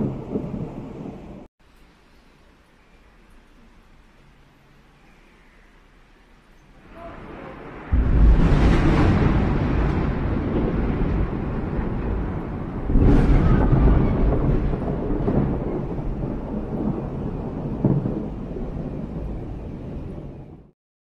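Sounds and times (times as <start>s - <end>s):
thunder rolling and rumbling: 0.0s - 1.5s, 6.9s - 20.7s.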